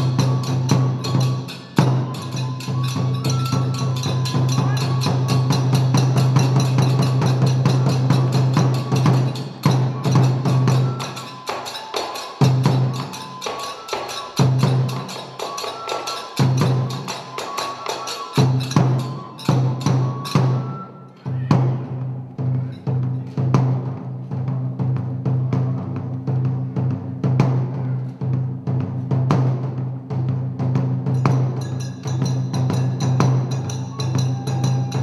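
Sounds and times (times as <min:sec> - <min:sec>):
high held flute notes: 0:00.0 - 0:07.2, 0:08.3 - 0:21.6, 0:33.4 - 0:35.0
hand cymbals: 0:00.0 - 0:26.9, 0:27.7 - 0:35.0.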